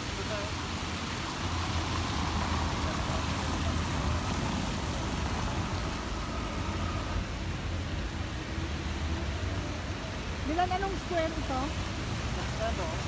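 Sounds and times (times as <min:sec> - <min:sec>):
city ambience rumble and hiss: 0:00.0 - 0:13.0.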